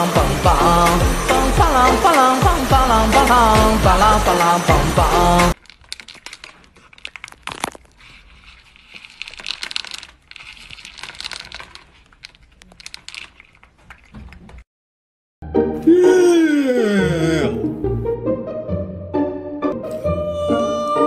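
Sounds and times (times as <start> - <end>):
cat crunching dry kibble: 5.6 - 14.6.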